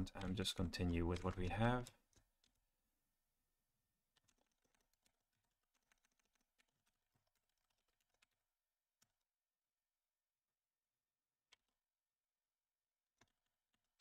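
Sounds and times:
faint keyboard typing: 0.0s - 2.7s, 4.1s - 9.3s.

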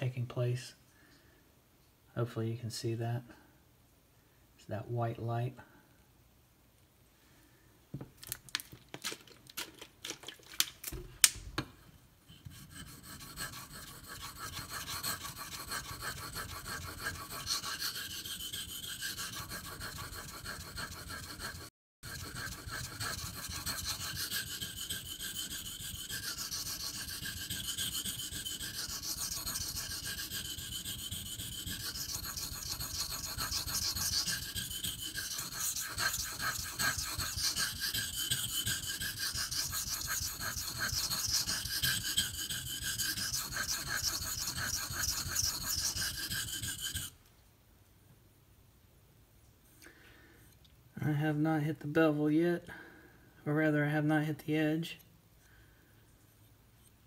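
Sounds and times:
knife scraping on whetstone: 12.3s - 47.2s.

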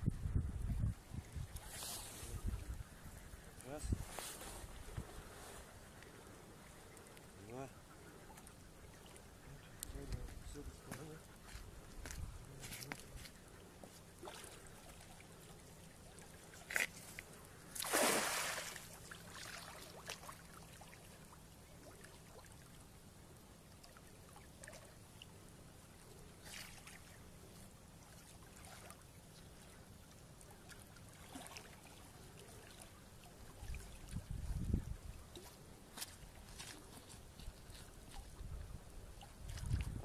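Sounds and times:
faint water sounds: 0.0s - 40.0s
small splashes: 11.9s - 22.9s, 23.7s - 25.4s, 26.4s - 27.2s, 28.0s - 34.4s, 39.1s - 40.0s
fishing net splashing into water: 17.7s - 20.6s.

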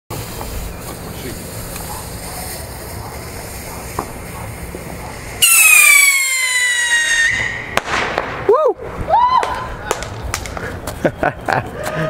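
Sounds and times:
steady hiss: 0.1s - 5.5s
whistling firework: 0.5s - 11.2s.

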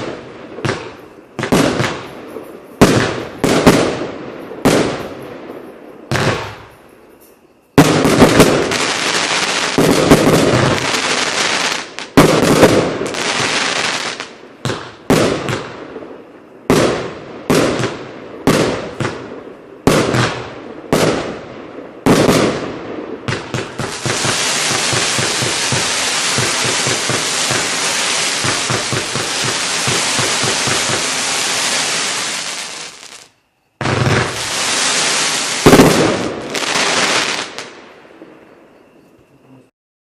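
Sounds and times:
firework bursts with crackle: 0.0s - 6.8s, 7.8s - 37.8s
sharp firework bangs: 7.8s - 15.9s, 22.0s - 37.8s
hiss of rising firework shots: 23.3s - 37.8s.

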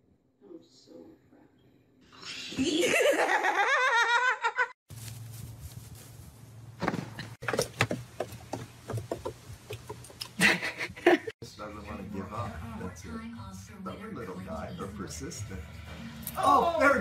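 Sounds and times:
person laughing: 2.5s - 4.8s, 9.8s - 11.3s
knocks and clicks: 6.8s - 10.4s.

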